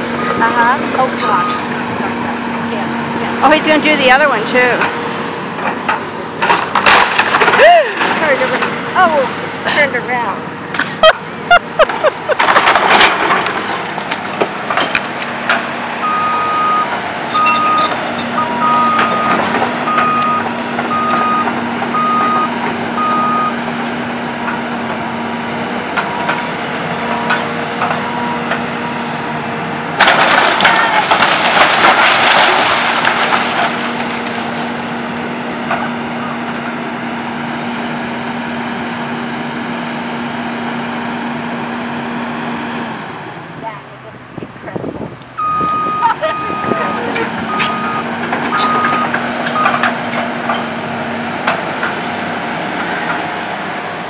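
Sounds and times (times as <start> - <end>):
excavator diesel engine running: 0.0 - 54.0
crash of timber and debris: 6.4 - 8.8, 11.8 - 15.8, 29.9 - 36.0
warning alarm beeping: 16.0 - 23.6, 45.4 - 49.8.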